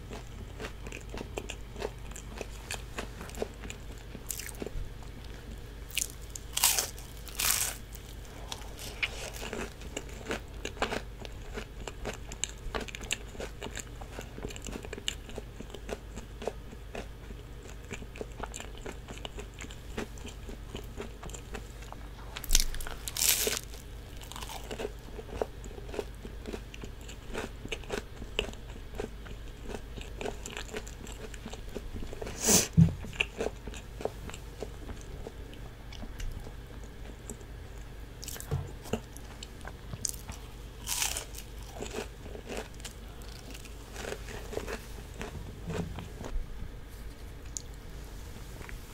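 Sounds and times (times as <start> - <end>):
chewing: 0.0 - 32.3, 33.1 - 46.1
crunchy bites into fried food: 5.9 - 13.9, 22.4 - 26.8, 38.2 - 45.3.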